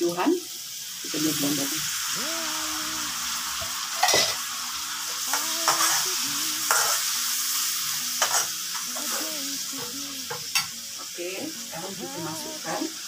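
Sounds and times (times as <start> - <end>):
paste sizzling in a wok: 0.0 - 13.0
metal spatula scraping a pan: 4.0 - 4.5, 5.3 - 9.2.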